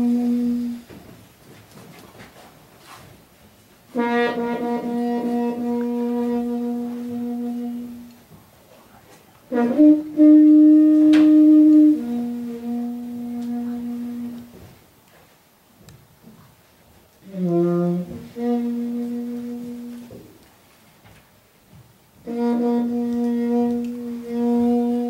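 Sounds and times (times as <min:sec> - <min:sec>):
horn blown in long notes: 0:00.0 - 0:01.0, 0:03.9 - 0:08.2, 0:09.5 - 0:14.6, 0:17.2 - 0:20.3, 0:22.2 - 0:25.0.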